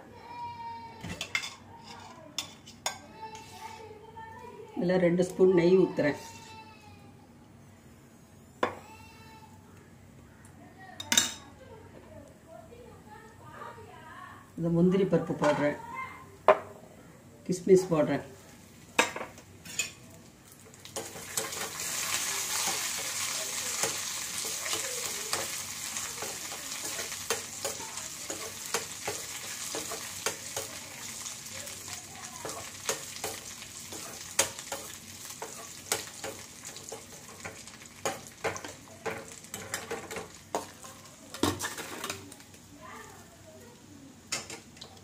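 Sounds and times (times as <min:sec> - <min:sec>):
nuts sizzling in oil: 0:18.4 - 0:45.0.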